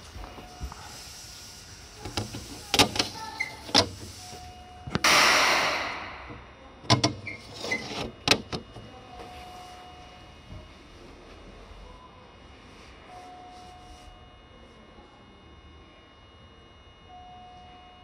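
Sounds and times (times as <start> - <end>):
train air hiss: 0.7 - 2.7
short squeaks: 7.2 - 8.0.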